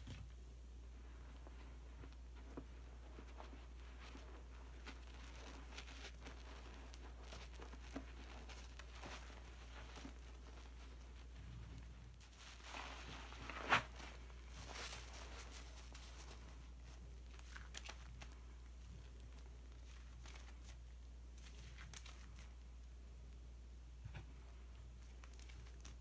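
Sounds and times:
sponges squelching in foam: 1.5s - 11.5s, 12.1s - 18.3s.

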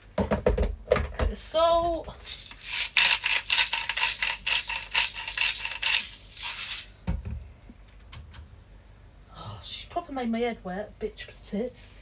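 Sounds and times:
salt grinder crunching: 2.2s - 6.9s.

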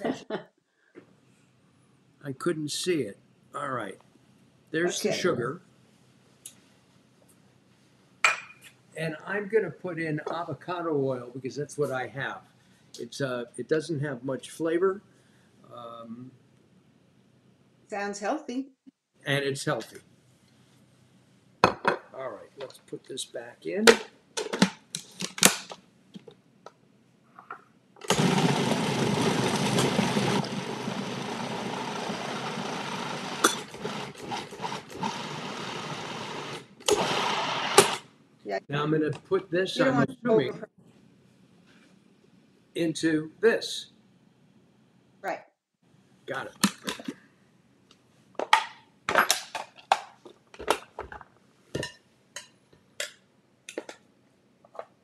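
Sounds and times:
food processor motor running: 28.0s - 38.0s.

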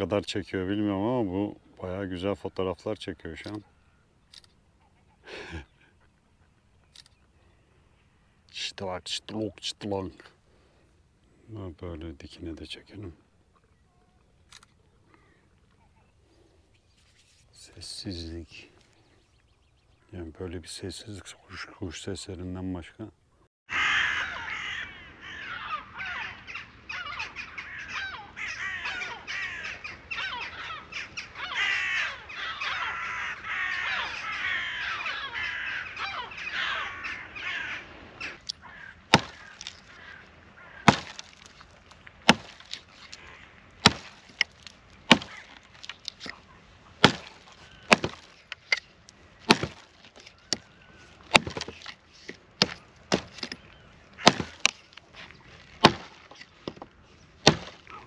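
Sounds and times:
gulls calling: 23.7s - 58.0s
hatchet chopping branch: 39.1s - 39.9s, 40.8s - 43.2s, 43.8s - 46.4s, 47.0s - 50.7s, 51.3s - 58.0s.

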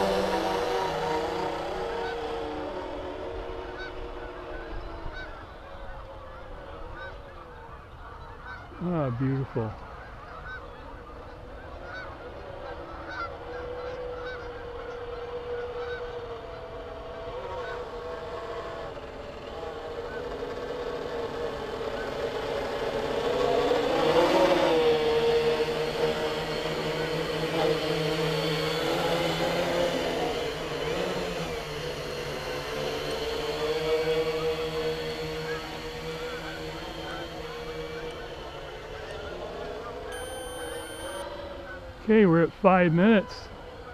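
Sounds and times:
quadcopter humming: 0.0s - 7.4s, 10.4s - 43.9s
geese honking: 7.0s - 8.8s, 9.8s - 16.2s.

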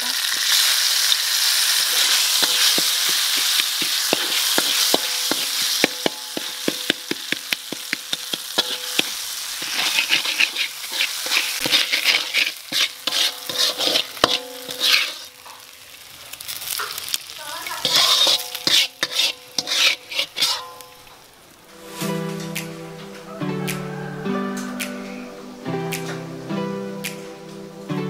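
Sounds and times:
oil sizzling in a wok: 0.0s - 28.0s
metal spatula scraping a pan: 1.8s - 22.5s.

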